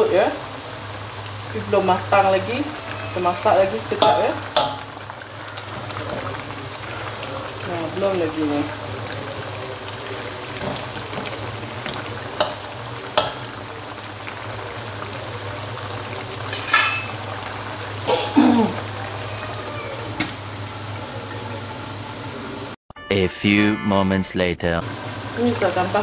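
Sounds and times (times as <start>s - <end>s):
food simmering and sizzling in wok: 0.0s - 22.8s, 24.8s - 26.0s
metal lid clanking: 4.0s - 5.0s, 16.5s - 17.2s
metal spatula scraping wok: 16.5s - 17.2s.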